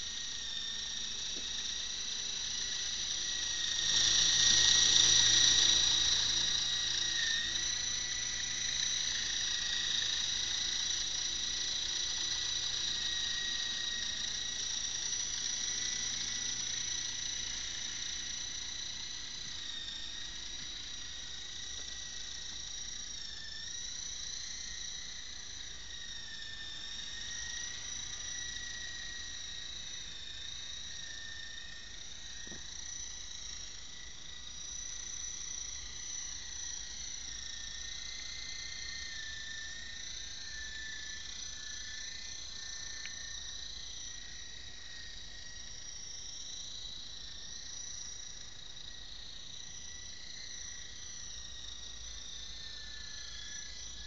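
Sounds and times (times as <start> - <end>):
toy helicopter motor whining: 0.0 - 33.2.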